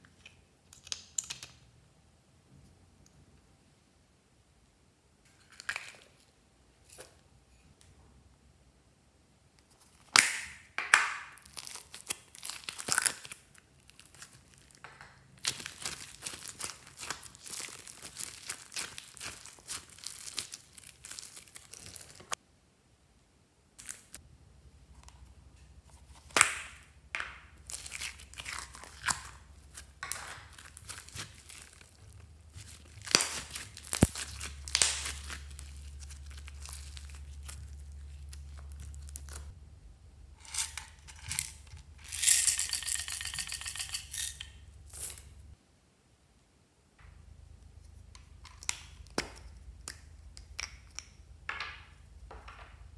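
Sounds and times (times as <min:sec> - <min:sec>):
foam beads crinkling in plastic cups: 0:11.2 - 0:22.4, 0:26.0 - 0:39.5, 0:40.4 - 0:45.4
low steady hum: 0:22.4 - 0:52.9.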